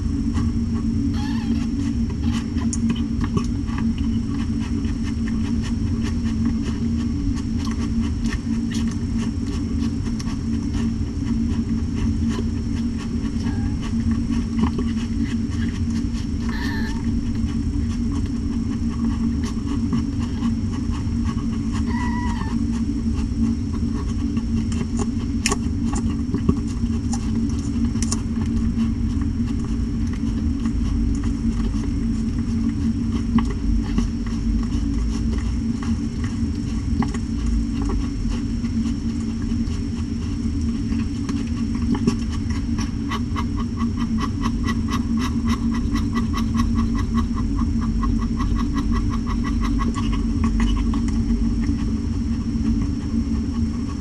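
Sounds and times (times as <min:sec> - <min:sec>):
low hum: 0:00.0 - 0:54.0
kittens squeaking: 0:01.1 - 0:02.5, 0:13.4 - 0:13.9, 0:16.4 - 0:17.1, 0:21.8 - 0:22.6.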